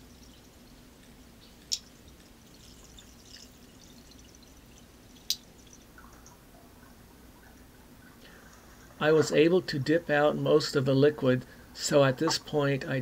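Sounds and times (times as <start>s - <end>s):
faint dripping liquid: 0.0s - 9.3s.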